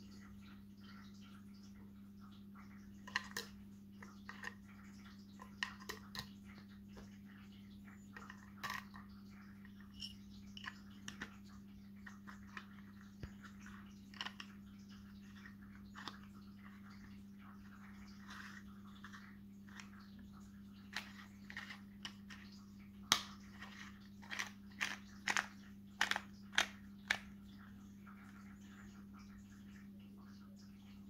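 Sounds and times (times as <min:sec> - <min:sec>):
small plastic clicks and taps: 0:20.9 - 0:27.3.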